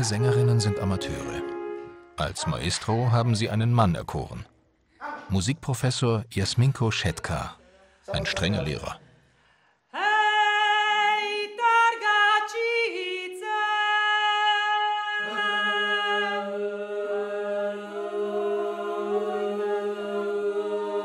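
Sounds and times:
women's choir singing a cappella: 0:10.0 - 0:21.0.

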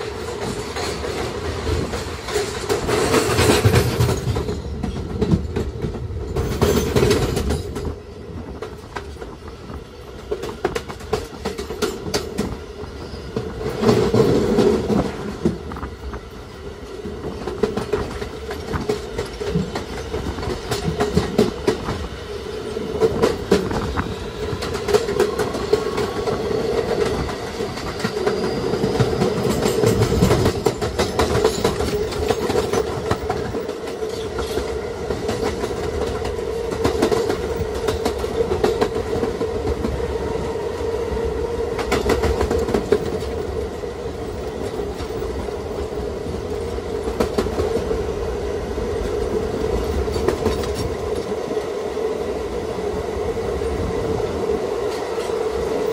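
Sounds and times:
wheels clacking over rail joints: 0:00.0 - 0:09.4, 0:10.0 - 0:15.8, 0:16.9 - 0:40.0, 0:41.7 - 0:48.0, 0:49.0 - 0:51.4
train rumble and drone: 0:00.0 - 0:55.9.

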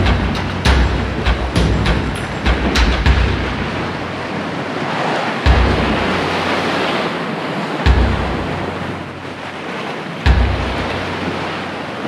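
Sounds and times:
low thumps: 0:00.0 - 0:04.7, 0:05.5 - 0:06.8, 0:07.9 - 0:09.4, 0:10.3 - 0:11.6
sea waves washing: 0:00.0 - 0:12.0
wind buffeting microphone: 0:00.0 - 0:12.0.

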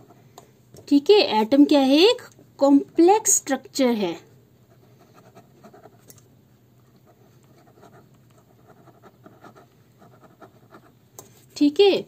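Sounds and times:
pen scratching on paper: 0:04.7 - 0:06.1, 0:06.9 - 0:11.4.

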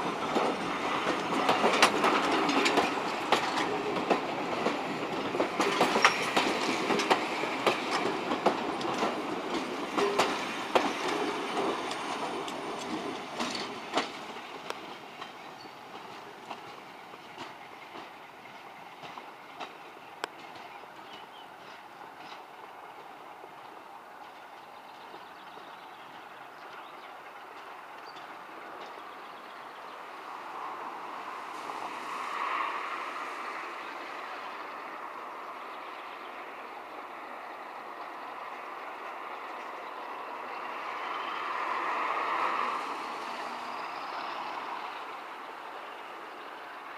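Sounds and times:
train wheels clicking over rail joints: 0:00.0 - 0:29.9.

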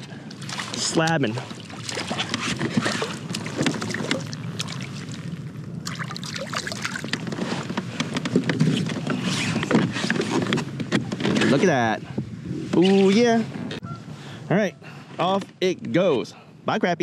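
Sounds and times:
fish splashing in water: 0:00.3 - 0:07.3.

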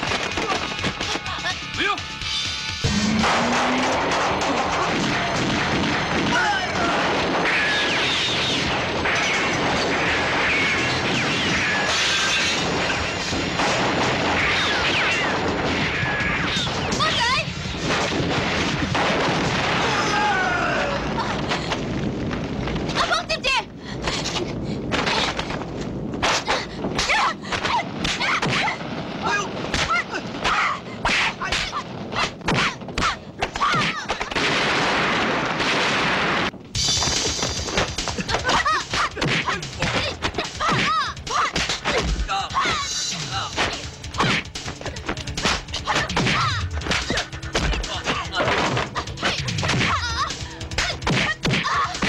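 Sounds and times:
crashing and smashing effects: 0:02.8 - 0:23.0, 0:34.1 - 0:40.9
shouts grunts and pained cries: 0:19.7 - 0:21.4, 0:38.5 - 0:43.6.

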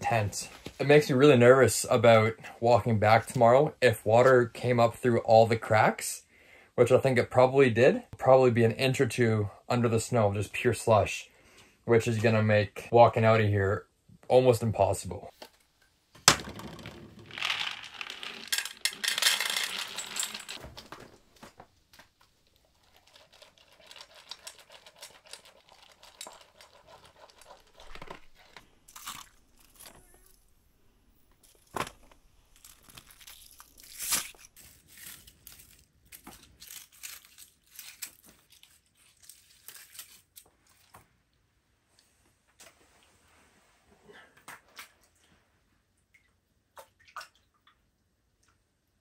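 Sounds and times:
rustling and crinkling handling noise: 0:17.2 - 0:30.5, 0:31.2 - 0:41.2.

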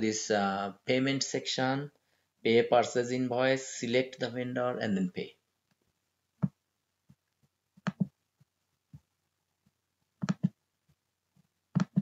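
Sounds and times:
computer mouse clicking: 0:07.8 - 0:08.1, 0:10.2 - 0:10.6, 0:11.7 - 0:12.0.

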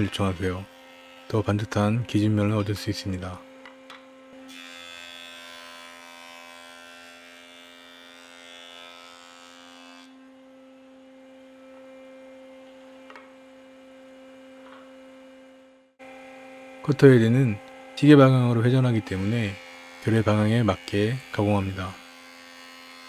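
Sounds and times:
jointer humming: 0:10.2 - 0:23.0.

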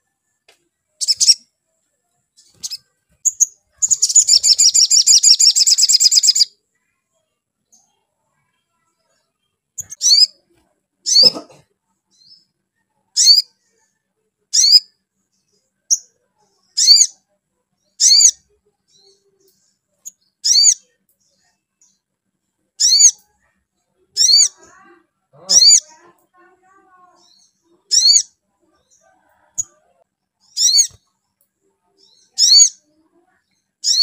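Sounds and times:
bird giving sharp high calls: 0:25.4 - 0:25.8.

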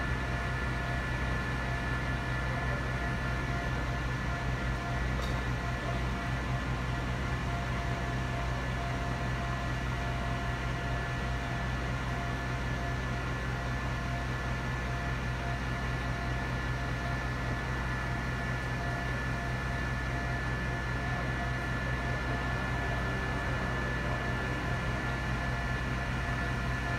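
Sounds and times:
crane machinery low hum: 0:00.0 - 0:26.9.

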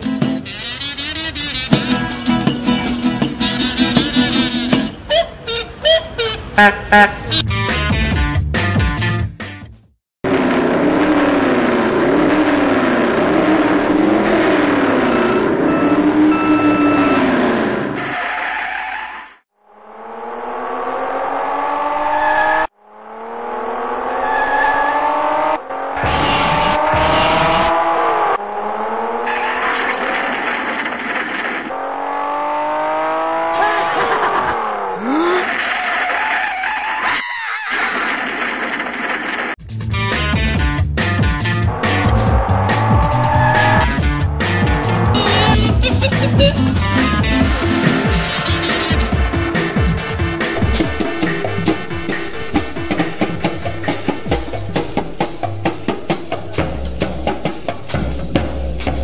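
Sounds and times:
tyres squealing: 0:00.3 - 0:06.6, 0:44.8 - 0:49.5
racing car engine revving: 0:10.3 - 0:18.1, 0:19.7 - 0:35.0, 0:40.3 - 0:56.4
start-light countdown beeps: 0:15.1 - 0:17.3, 0:45.1 - 0:49.3.

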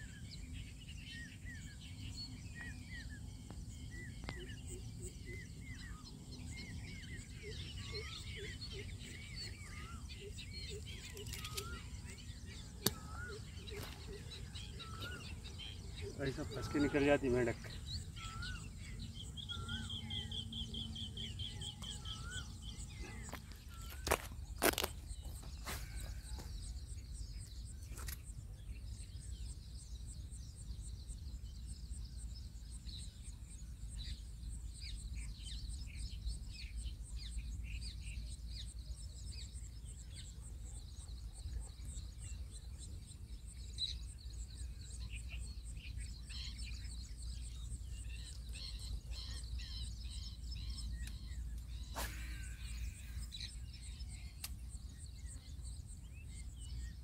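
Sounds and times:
birds chirping: 0:00.0 - 0:57.0
sharp click: 0:12.8 - 0:13.1.

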